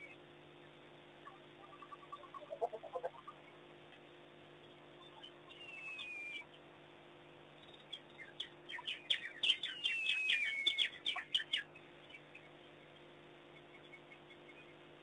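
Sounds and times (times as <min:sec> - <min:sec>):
high-pitched chirping calls: 0:01.2 - 0:03.6, 0:05.0 - 0:06.6, 0:07.6 - 0:12.5.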